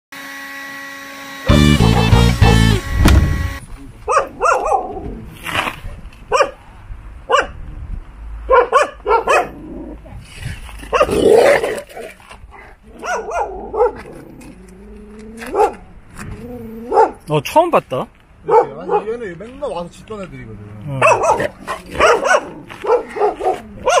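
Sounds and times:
dogs barking: 4.1 - 5.0, 6.3 - 6.6, 7.3 - 7.6, 8.5 - 9.6, 10.9 - 12.1, 12.9 - 14.3, 15.4 - 15.9, 16.8 - 17.2, 18.4 - 19.2, 21.0 - 24.0.

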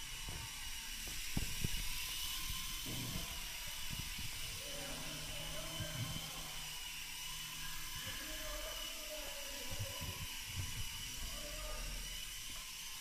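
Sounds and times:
toy helicopter rotor whine: 0.0 - 13.0.

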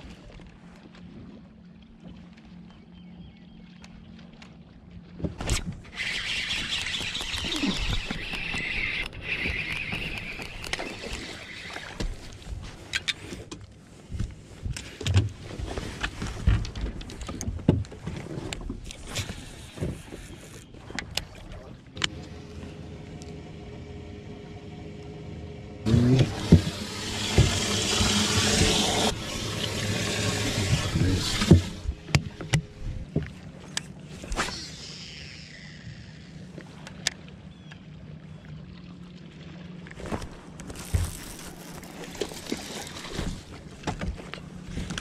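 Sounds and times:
fish handled in a boat: 0.0 - 45.0
rushing splashing water: 25.9 - 32.4.

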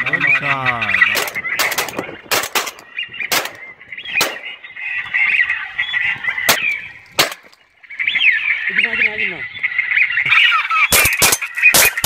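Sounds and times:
ducks honking and quacking: 0.0 - 12.0
sharp cracks: 1.0 - 4.6, 6.4 - 7.6, 10.7 - 12.0.

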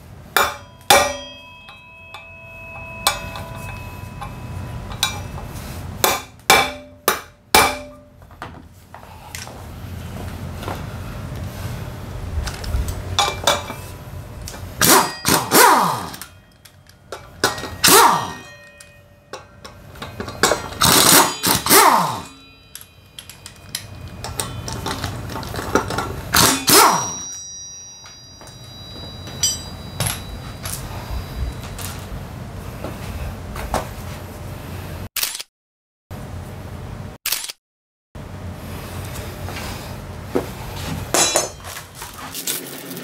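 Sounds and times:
impact wrench hammering: 0.3 - 8.6, 13.2 - 13.9, 14.8 - 30.9, 41.1 - 41.8
metal clinks: 0.4 - 7.1, 12.6 - 32.1, 41.1 - 42.8.

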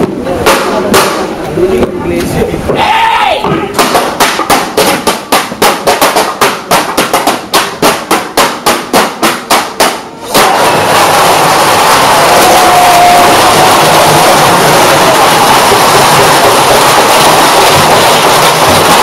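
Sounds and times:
loud continuous wash of sound: 10.1 - 19.0.

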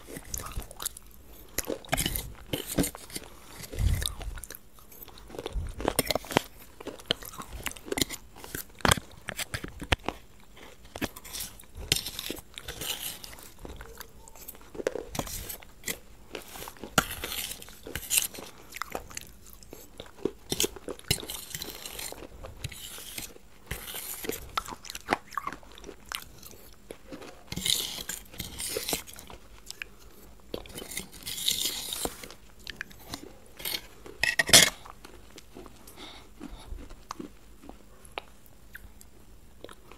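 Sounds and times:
chewing and wet mouth sounds: 0.0 - 39.9
metal spoon scraping a plate: 33.6 - 34.8.

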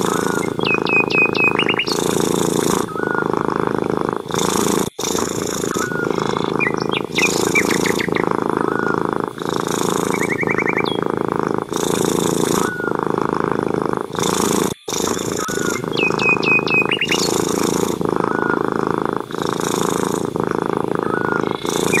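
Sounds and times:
bird chirps and trills: 0.0 - 3.3, 4.6 - 13.0, 14.2 - 18.7, 20.9 - 22.0
cat purring: 0.0 - 22.0.

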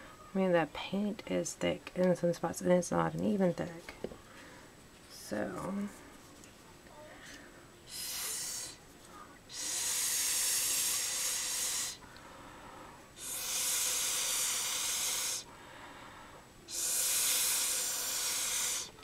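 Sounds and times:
air blown through a straw: 7.9 - 8.8, 9.5 - 12.0, 13.2 - 15.5, 16.7 - 19.0.

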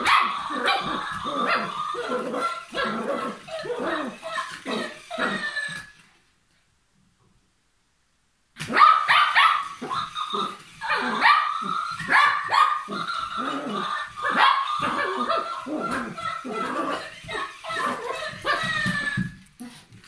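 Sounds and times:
small dog barking and yipping: 0.0 - 5.8, 8.6 - 19.3.

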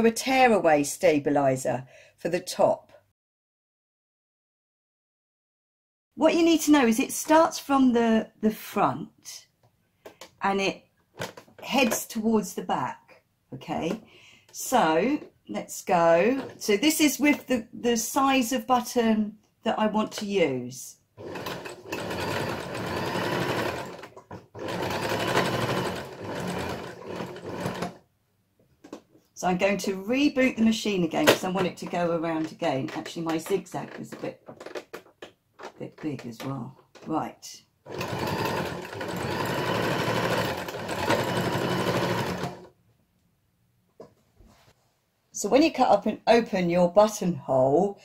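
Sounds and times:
sewing machine stitching: 16.3 - 16.6, 21.2 - 28.0, 37.9 - 42.7.

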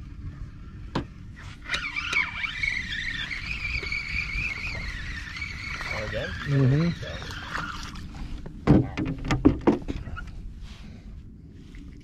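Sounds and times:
fishing reel whirring: 1.4 - 8.2.

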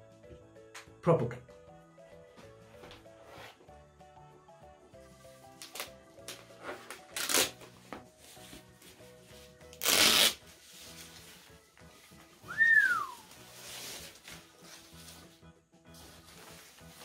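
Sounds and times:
soft background music: 0.0 - 17.0
packaging rustling and scraping: 13.4 - 15.4.

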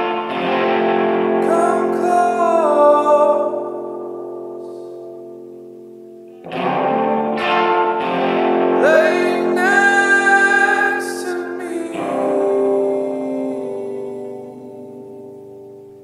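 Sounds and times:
guitar: 0.0 - 16.0
person singing: 1.2 - 5.3, 8.7 - 15.6.

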